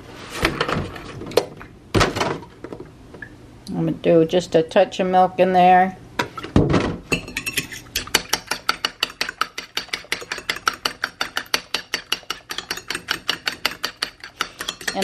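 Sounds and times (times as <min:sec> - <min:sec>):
fork whisking in ceramic bowl: 0:07.3 - 0:15.0.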